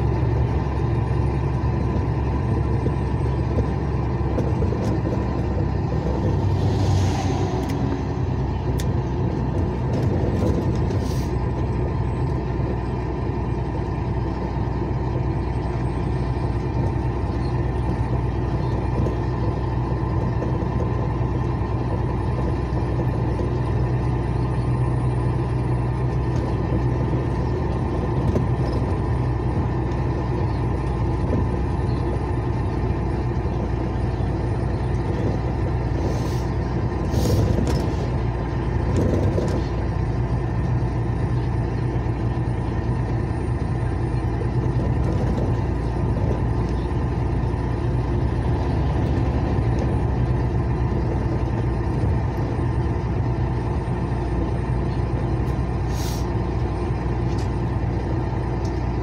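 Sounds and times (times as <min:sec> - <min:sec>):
vehicle engine drone: 0:00.0 - 0:59.0
short hisses: 0:37.1 - 0:37.5, 0:55.9 - 0:56.3.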